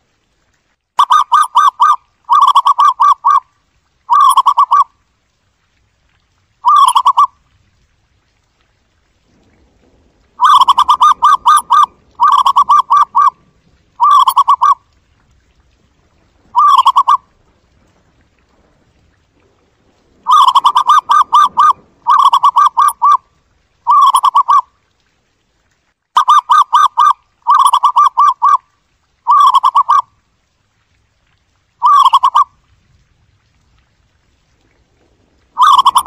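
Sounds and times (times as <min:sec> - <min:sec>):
dove cooing: 0:01.1 - 0:03.4, 0:06.6 - 0:07.3, 0:10.4 - 0:14.8, 0:16.5 - 0:17.2, 0:20.2 - 0:23.2, 0:23.9 - 0:24.6, 0:29.3 - 0:30.0, 0:31.8 - 0:32.4, 0:35.6 - 0:36.0.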